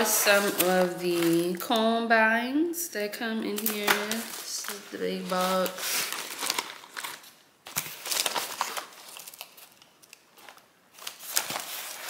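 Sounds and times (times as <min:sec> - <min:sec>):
plastic combs clicking and rustling: 0:03.5 - 0:12.0.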